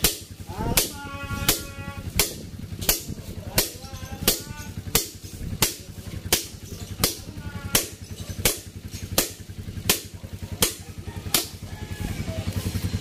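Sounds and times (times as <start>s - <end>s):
low fast throbbing: 0.0s - 13.0s.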